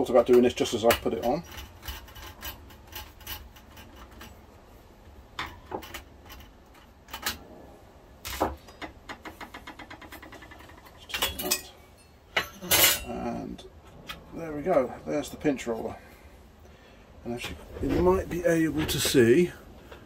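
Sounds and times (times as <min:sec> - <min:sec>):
small metallic clicks and knocks: 0:00.2 - 0:07.4, 0:08.2 - 0:14.8.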